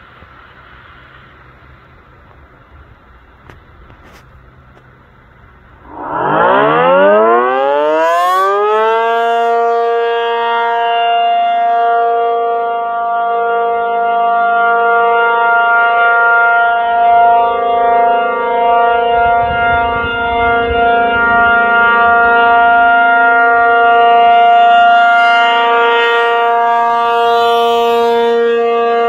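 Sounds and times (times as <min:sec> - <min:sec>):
tornado siren wailing: 0:05.6 - 0:29.0.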